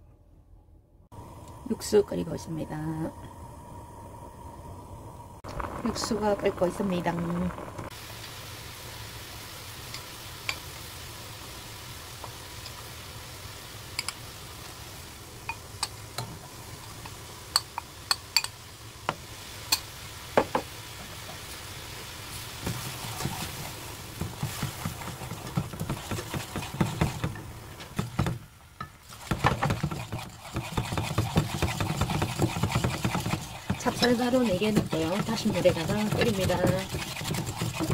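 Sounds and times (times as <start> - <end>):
broth bubbling in pan: 5.2 - 37.9
whisk stirring against pan: 22.4 - 28.4, 29.0 - 37.9.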